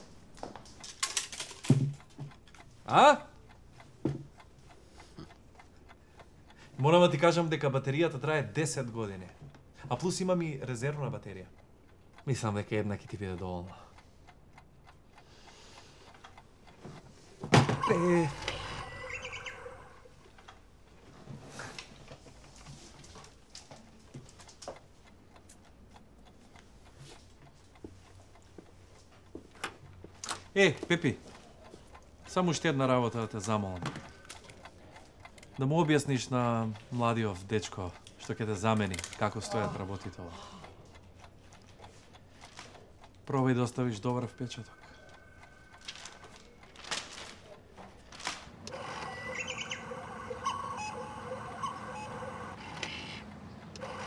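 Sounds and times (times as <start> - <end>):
faint clicks and knocks: 0.0 - 2.8, 40.0 - 48.8
small birds chirping: 18.8 - 20.1, 48.8 - 52.5
rustling: 45.8 - 48.7.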